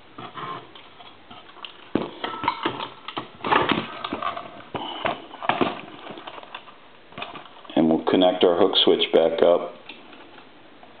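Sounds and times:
knocks and rattles on wood: 1.2s - 6.6s.

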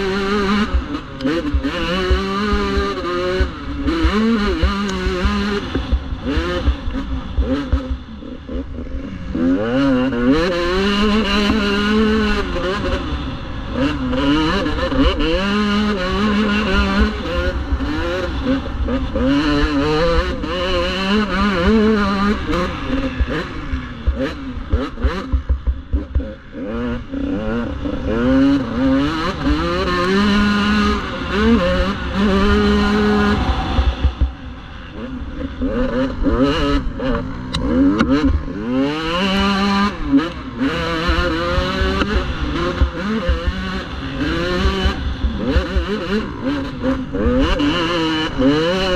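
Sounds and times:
motorcycle engine revving: 0.0s - 48.9s
wind and bumps on microphone: 32.0s - 35.8s.

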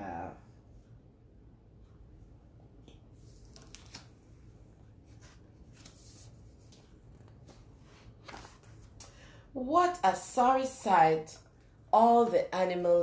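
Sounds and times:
book pages turning: 3.2s - 4.3s, 5.1s - 9.0s.

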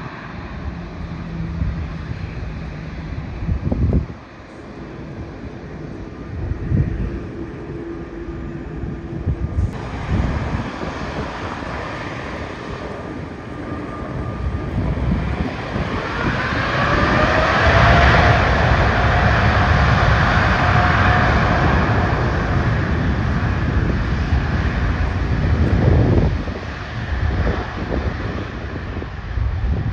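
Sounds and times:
jet engines whining: 0.0s - 29.9s
low rumble: 0.0s - 29.9s
wind on microphone: 0.0s - 29.9s.

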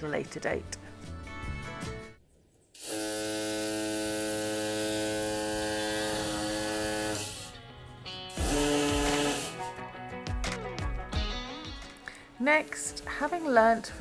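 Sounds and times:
power tool running on plaster: 2.8s - 7.6s, 8.4s - 9.6s.

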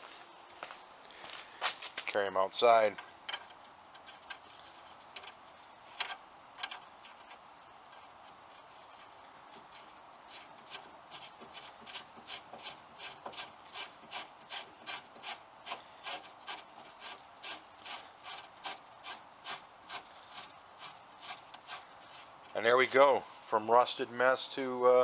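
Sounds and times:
bolt rubbing in nut: 2.8s - 22.7s.

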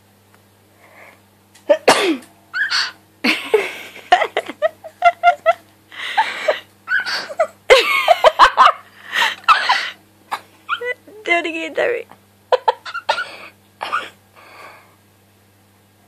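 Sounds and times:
cockatiel sneezing: 1.8s - 3.0s, 12.8s - 14.1s
laughter: 3.2s - 10.0s, 12.5s - 13.1s.

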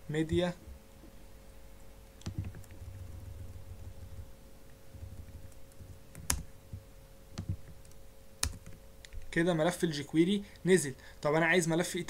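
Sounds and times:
faint steady hum: 0.0s - 12.0s
mouse and keyboard clicks: 2.1s - 3.0s, 5.0s - 6.5s, 7.3s - 9.3s.

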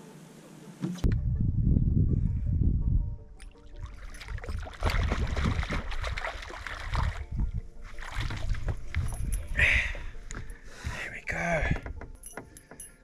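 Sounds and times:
fish splashing in water: 4.2s - 7.3s.

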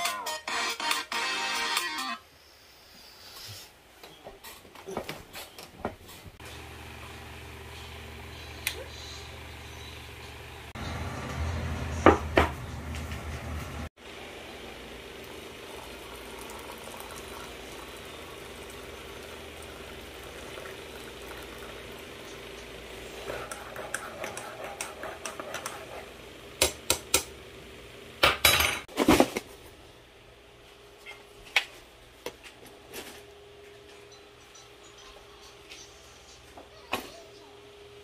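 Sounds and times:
water pouring into mug: 15.3s - 22.1s.

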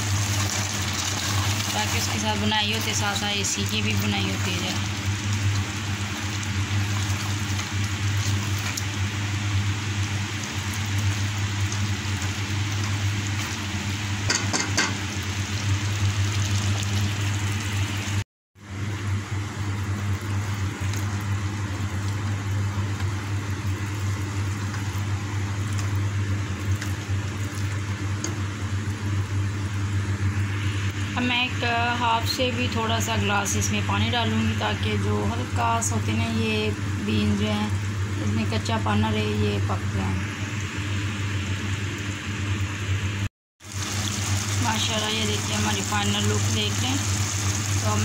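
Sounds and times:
food sizzling in a pot: 0.0s - 18.2s, 43.6s - 48.0s
low steady hum: 0.0s - 48.0s.

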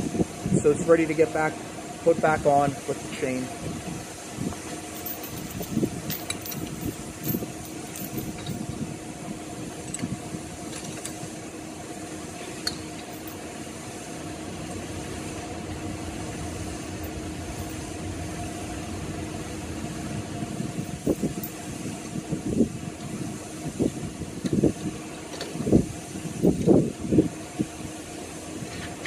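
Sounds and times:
steady machine hum: 0.0s - 29.0s
metal knocks and clinks: 5.0s - 8.6s.

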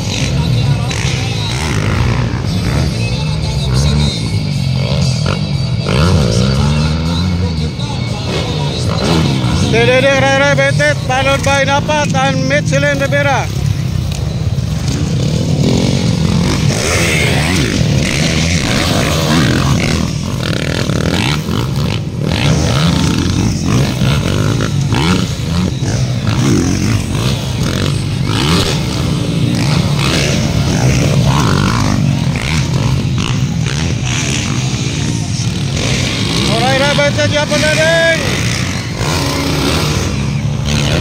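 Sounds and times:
dirt bike engines revving: 0.0s - 41.0s.

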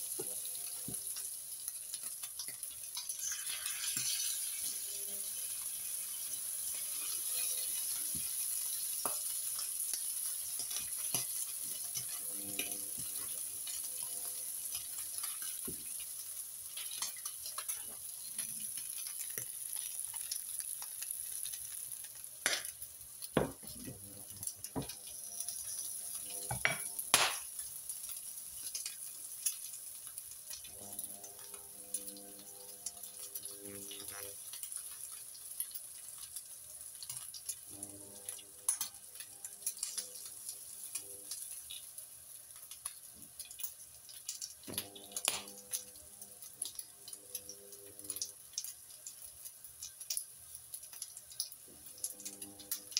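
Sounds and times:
bacon sizzling in a frying pan: 0.0s - 52.9s
pan and utensils knocking: 23.4s - 24.0s.

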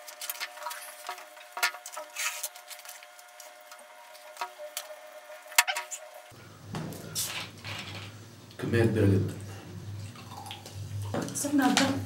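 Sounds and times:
chewing: 10.0s - 10.8s.

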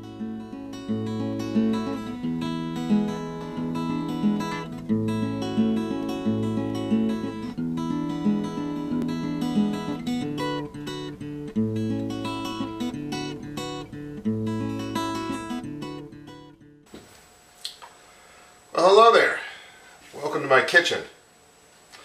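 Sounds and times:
acoustic guitar music: 0.0s - 16.9s.

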